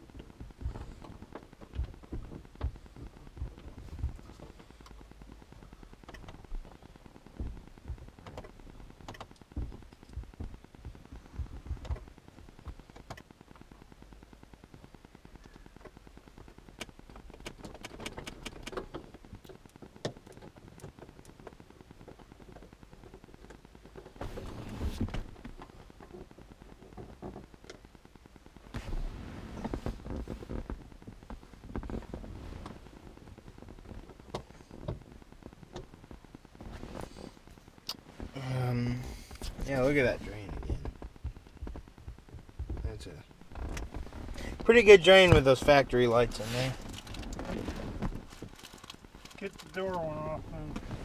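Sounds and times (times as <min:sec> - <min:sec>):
plastic rattling: 0:46.3 - 0:50.0.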